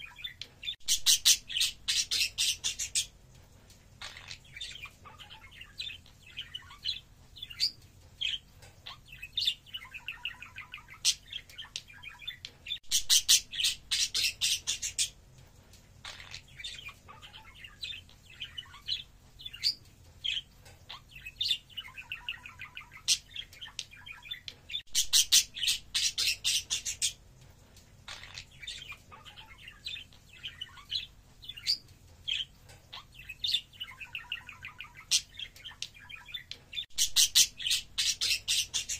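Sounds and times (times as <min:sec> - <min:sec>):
budgerigar warbling and chattering: 0:04.0 - 0:07.8, 0:08.8 - 0:15.1, 0:16.0 - 0:19.8, 0:28.1 - 0:38.9.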